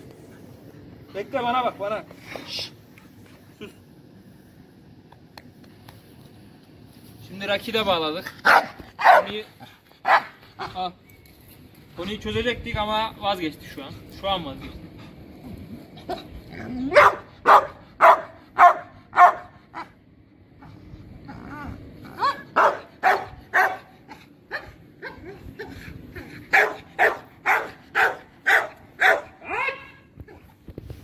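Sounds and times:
dog barking sharply: 8.4 - 9.3, 10.0 - 10.4, 17.0 - 19.5, 22.2 - 23.9, 26.5 - 29.4.

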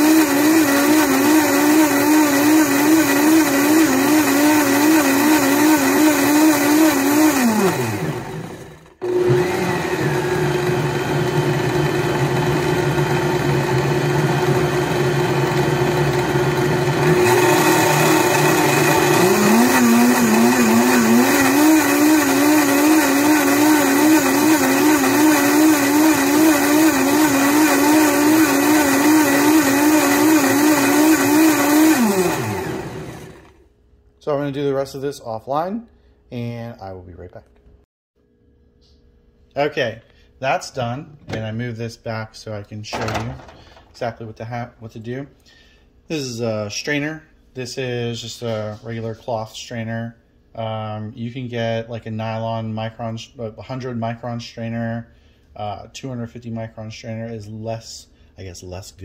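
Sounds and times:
blender motor running: 0.0 - 33.6.

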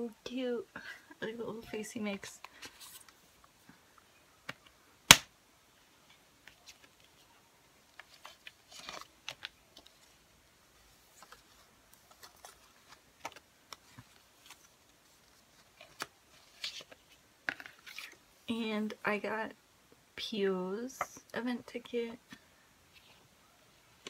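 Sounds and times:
paper and cardboard rustling: 7.9 - 10.2, 10.8 - 18.2
plastic cd case clicking: 12.1 - 14.6.

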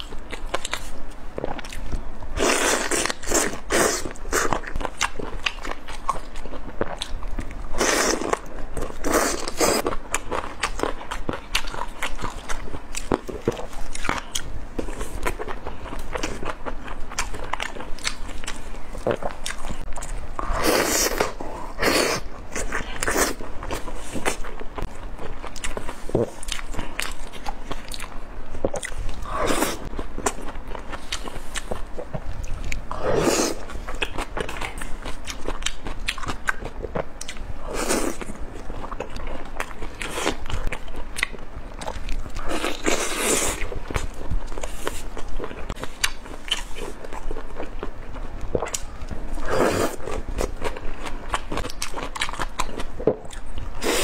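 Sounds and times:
chewing and biting: 38.0 - 54.0.

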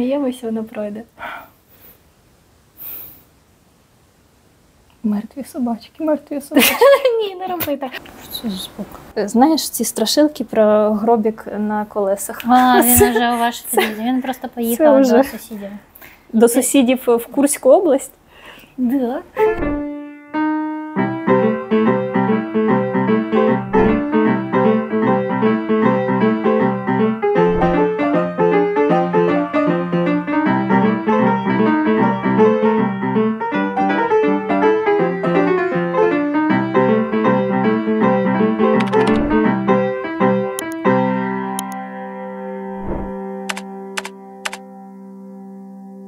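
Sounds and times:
piano music: 19.4 - 44.8.

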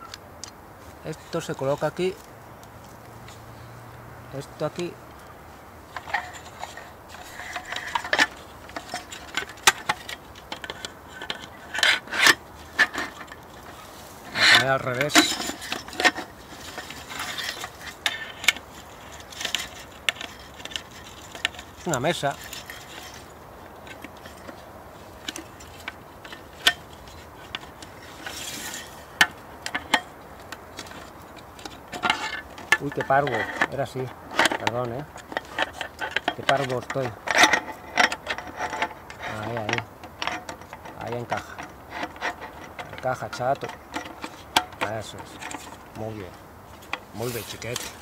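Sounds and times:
short rustle: 0.8 - 48.0
panel scraping against frame: 6.0 - 24.6.

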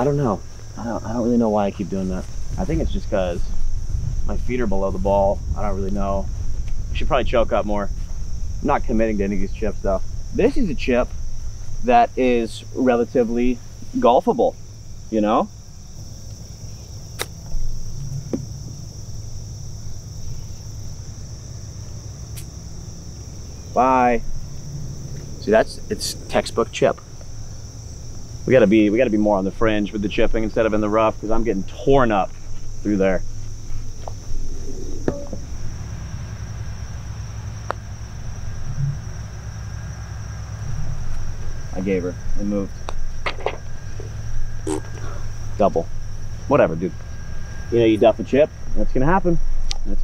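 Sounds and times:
insects chirring: 0.0 - 50.0
low steady rumble: 0.0 - 50.0
soft thump: 18.0 - 18.8
putter striking golf ball: 35.0 - 35.5.

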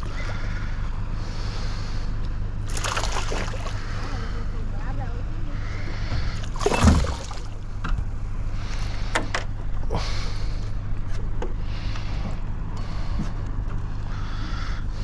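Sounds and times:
steady low rumble: 0.0 - 15.0
water lapping against boat hull: 2.7 - 4.4, 5.6 - 8.1.

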